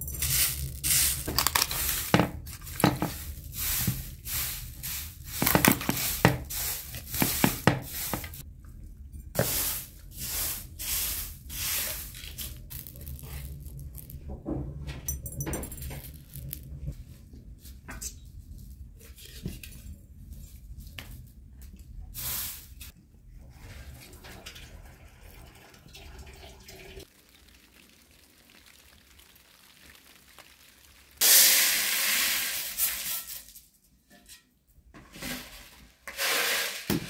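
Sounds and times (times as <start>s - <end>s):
dried beans rattling on metal tray: 11.8s - 14.3s.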